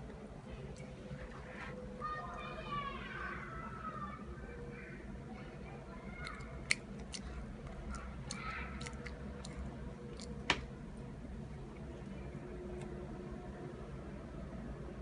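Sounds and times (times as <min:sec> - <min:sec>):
low room hum: 0:00.0 - 0:15.0
toddler chewing: 0:06.2 - 0:10.6
mouth clicks and smacks: 0:06.2 - 0:10.7.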